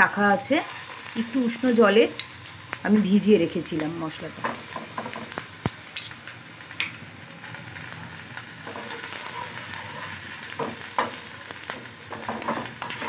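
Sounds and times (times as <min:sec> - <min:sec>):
paste sizzling in oil: 0:00.0 - 0:13.0
spatula scraping pan: 0:08.6 - 0:13.0.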